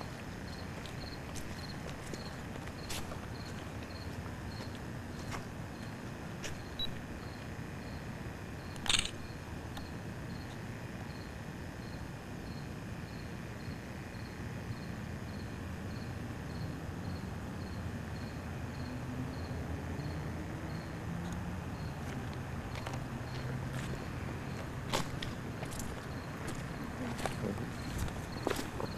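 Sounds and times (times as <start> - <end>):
sharp click: 8.8 - 9.2.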